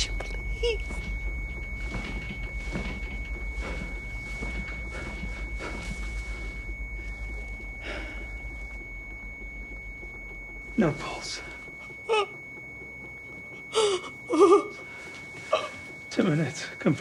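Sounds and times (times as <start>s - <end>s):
patient monitor flatline tone: 0.0s - 17.0s
person sobbing: 12.0s - 12.4s, 13.7s - 14.8s, 15.5s - 15.8s.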